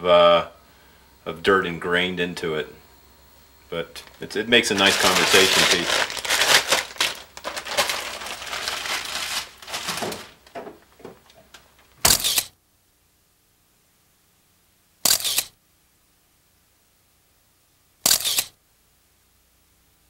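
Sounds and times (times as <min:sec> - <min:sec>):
things rustling and clattering: 0:04.0 - 0:12.0
camera shutter: 0:12.0 - 0:12.5, 0:15.0 - 0:15.6, 0:18.0 - 0:18.6.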